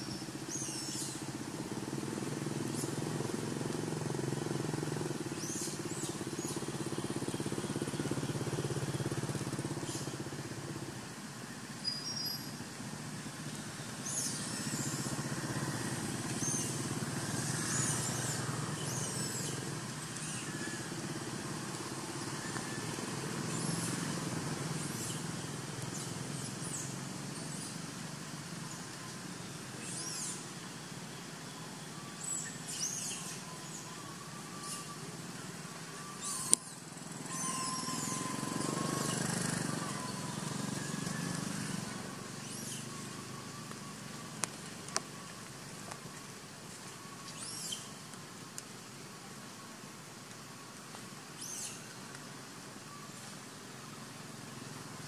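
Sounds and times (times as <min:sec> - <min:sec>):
thin wavering whistle: 0:31.4 - 0:35.2, 0:35.9 - 0:44.2
high downward-sweeping chirps: 0:36.2 - 0:43.7.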